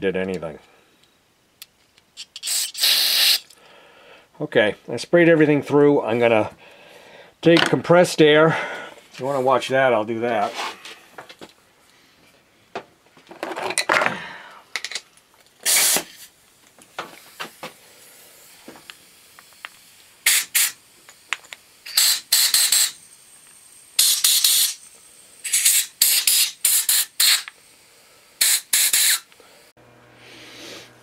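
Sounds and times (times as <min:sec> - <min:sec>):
compressed air blasts: 0:02.4 - 0:03.6, 0:15.6 - 0:16.4, 0:17.0 - 0:30.9.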